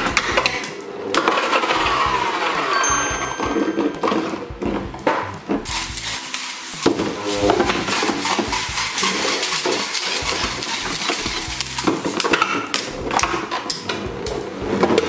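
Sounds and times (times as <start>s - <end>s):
spinning tops whirring: 5.6s - 14.8s.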